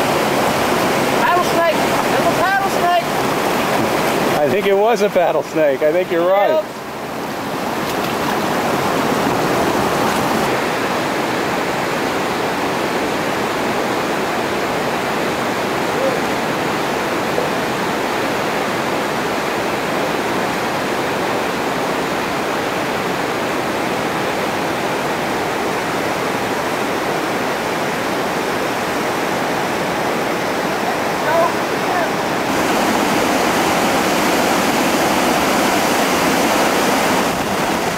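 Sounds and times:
river rapids rushing: 0:00.0 - 0:37.9.

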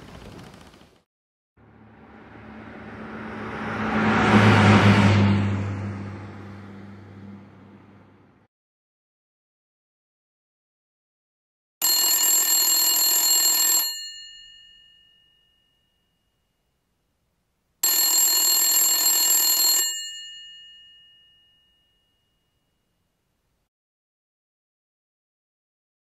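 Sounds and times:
telephone ringing: 0:11.8 - 0:15.5, 0:17.8 - 0:21.8.

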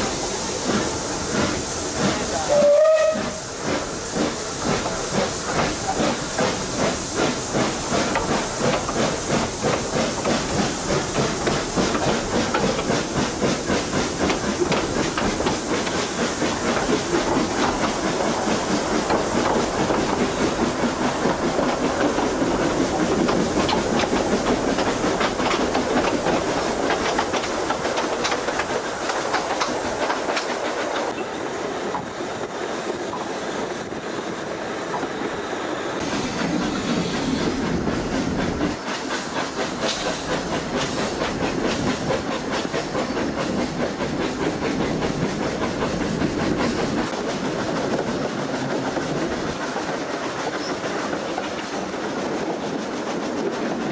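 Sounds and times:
steam hissing: 0:00.0 - 0:53.9
steam locomotive whistle: 0:02.5 - 0:03.5.

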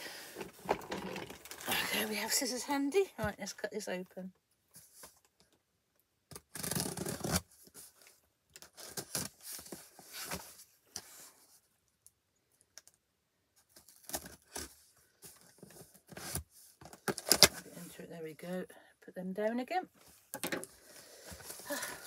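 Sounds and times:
scissors slitting packing tape: 0:06.3 - 0:07.4.

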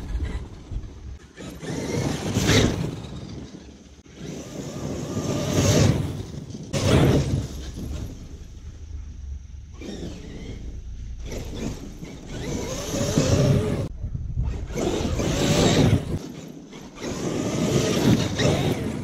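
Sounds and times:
electric toy truck motor whining: 0:01.2 - 0:06.2, 0:09.7 - 0:13.9, 0:14.5 - 0:19.0.

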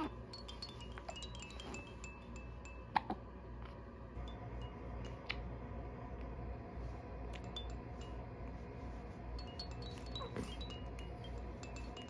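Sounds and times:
high tinkling chime notes: 0:00.0 - 0:03.2, 0:07.4 - 0:08.4, 0:09.3 - 0:12.0
low steady hum: 0:00.0 - 0:12.0.

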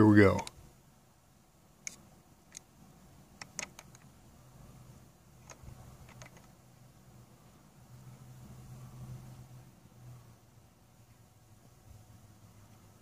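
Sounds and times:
faint low hum: 0:00.0 - 0:13.0
small clicks and light taps: 0:03.4 - 0:04.1, 0:05.4 - 0:06.6.

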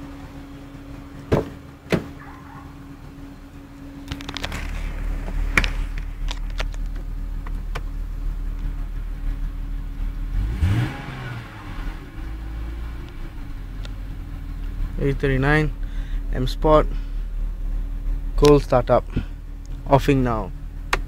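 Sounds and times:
car engine idling and revving: 0:00.0 - 0:21.0.

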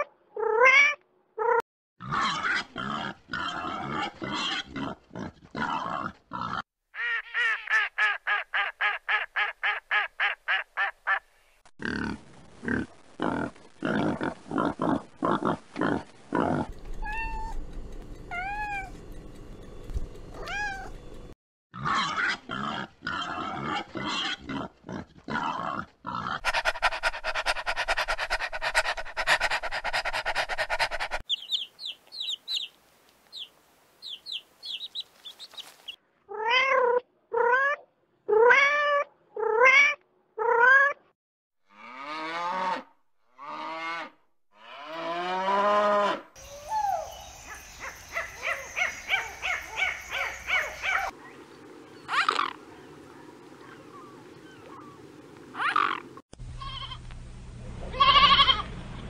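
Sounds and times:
wild boar grunting: 0:21.8 - 0:31.2
animal calls: 0:46.0 - 0:51.2, 0:52.0 - 0:52.6, 0:53.3 - 0:56.9.

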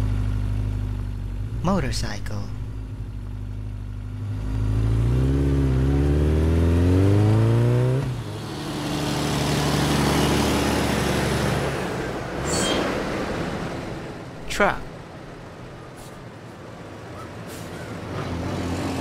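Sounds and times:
motorcycle engine revving: 0:04.1 - 0:11.8.

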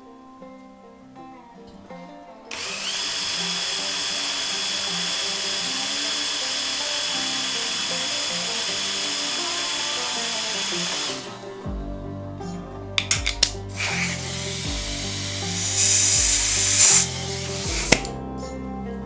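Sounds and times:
cordless drill whining: 0:02.5 - 0:11.6, 0:13.0 - 0:18.2.

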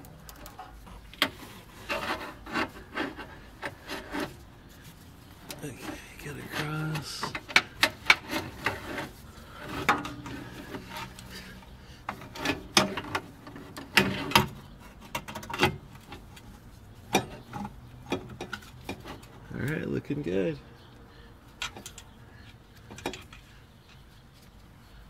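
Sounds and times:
parts clicking and knocking: 0:05.4 - 0:11.3, 0:21.6 - 0:24.0.

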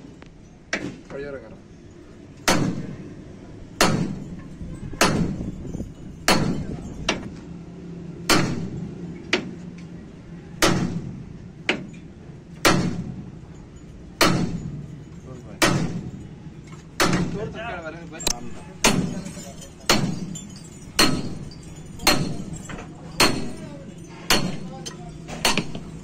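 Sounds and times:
hammer striking steel: 0:02.4 - 0:03.1, 0:03.8 - 0:07.3, 0:08.2 - 0:09.6, 0:10.6 - 0:13.4, 0:14.2 - 0:17.6, 0:18.2 - 0:26.0.

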